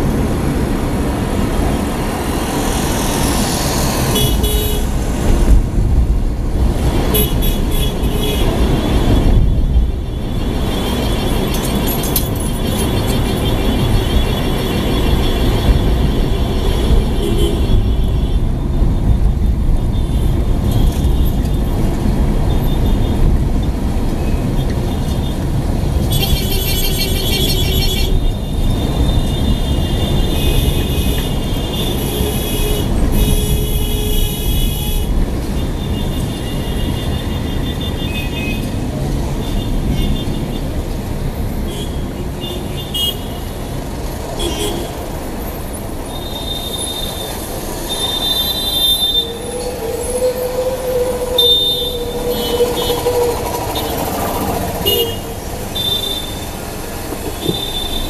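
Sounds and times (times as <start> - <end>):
traffic rumble: 0.0 - 58.0
car horns honking: 4.1 - 5.0, 46.2 - 58.0.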